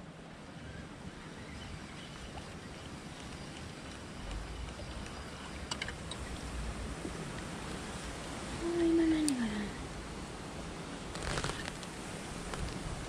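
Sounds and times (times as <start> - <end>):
river water flowing: 0.0 - 13.0
wind buffeting microphone: 0.0 - 13.0
faint clicks: 2.0 - 8.4.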